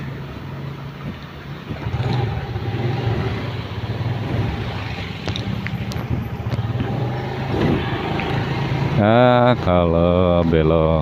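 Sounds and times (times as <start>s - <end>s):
road and wind noise: 0.0s - 11.0s
motorcycle engine running: 1.7s - 9.1s.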